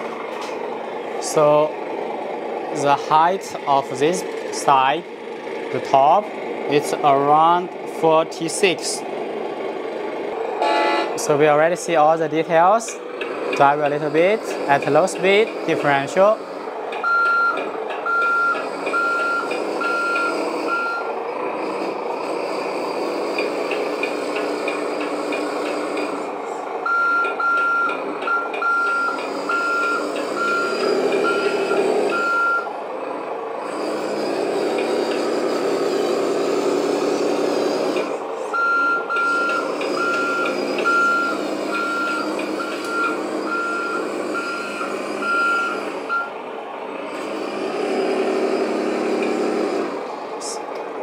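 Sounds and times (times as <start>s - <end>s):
simulated diesel truck engine: 0.0s - 51.0s
reversing beeper: 17.0s - 21.1s, 26.8s - 32.7s, 38.5s - 46.4s.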